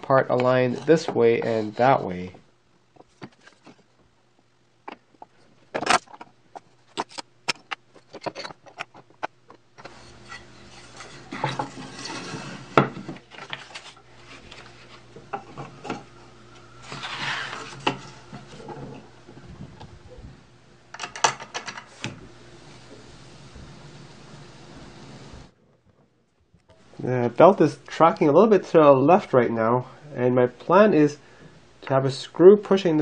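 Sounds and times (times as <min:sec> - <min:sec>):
wooden pieces knocking and clicking: 0:04.9 - 0:09.6.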